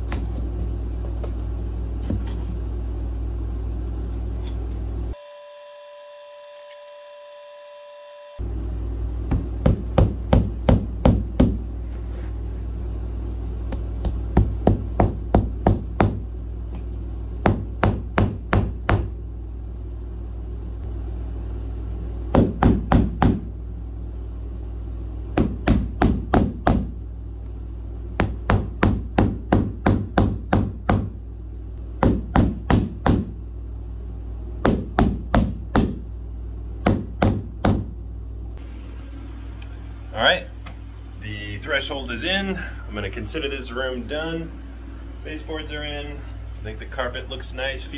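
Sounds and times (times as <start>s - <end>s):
steady low hum: 0.0s - 47.9s.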